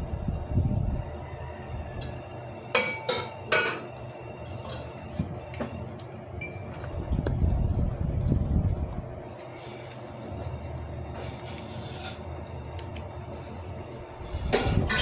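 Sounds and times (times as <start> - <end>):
kitchenware clinking: 2.7 - 3.9, 6.4 - 6.9, 14.5 - 15.0.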